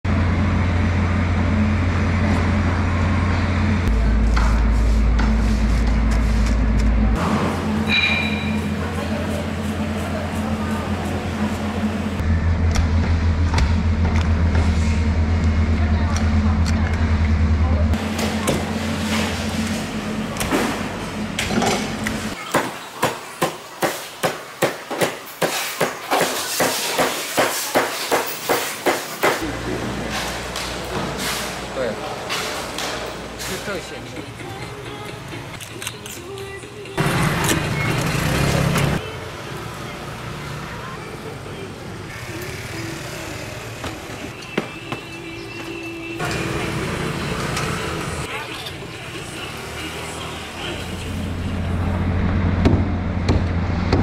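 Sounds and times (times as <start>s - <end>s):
low machine drone: 0.0s - 22.4s, 49.2s - 54.0s.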